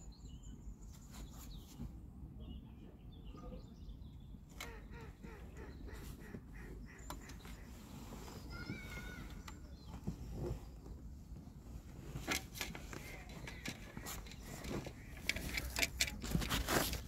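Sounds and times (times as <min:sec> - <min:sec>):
distant bird calls: 0:02.5 - 0:17.0
light clicks and knocks: 0:12.2 - 0:17.0.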